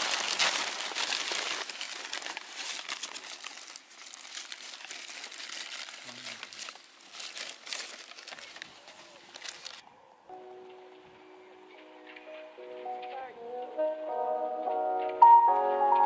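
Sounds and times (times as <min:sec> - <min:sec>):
paper wrapping crinkling: 0:00.0 - 0:09.8.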